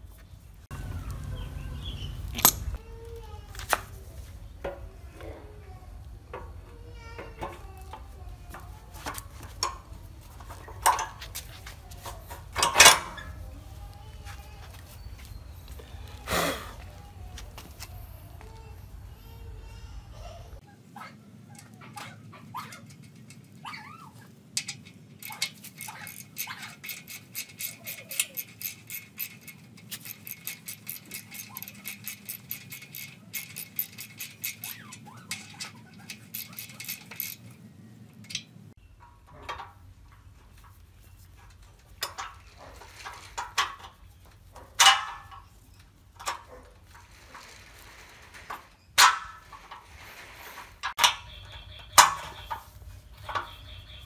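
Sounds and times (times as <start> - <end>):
metal clanks: 2.3 - 2.8, 6.3 - 13.5, 24.6 - 40.8, 41.4 - 54.0
ratchet wrench clicking: 24.6 - 37.5.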